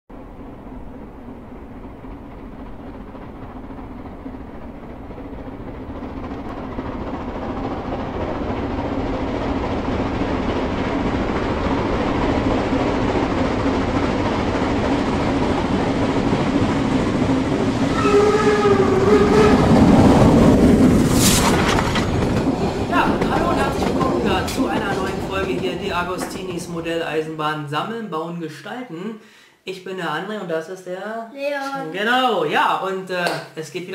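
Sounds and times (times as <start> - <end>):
steam locomotive approaching: 0.1 - 27.3
train whistle: 17.8 - 20.1
steam hiss: 20.8 - 22.0.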